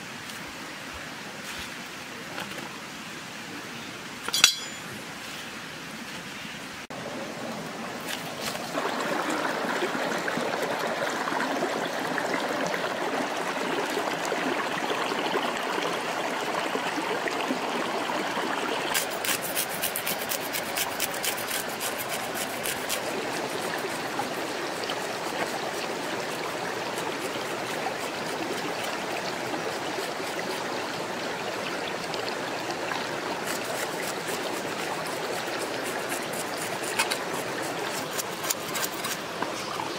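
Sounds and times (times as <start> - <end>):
rocky stream running: 0.0 - 39.9
knife scraping fish scales: 19.0 - 23.9, 33.5 - 39.3.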